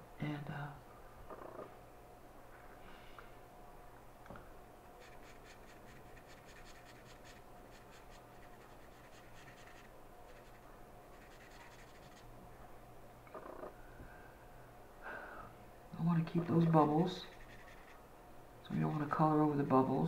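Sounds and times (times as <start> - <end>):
marker rubbing on paper: 5.0 - 12.3, 16.4 - 18.0, 18.7 - 19.3.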